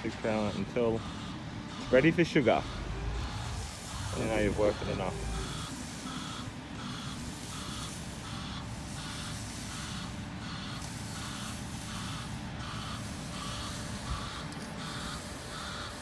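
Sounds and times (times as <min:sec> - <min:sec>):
reversing alarm beeping: 0:00.0 - 0:16.0
truck engine rumbling: 0:00.0 - 0:16.0.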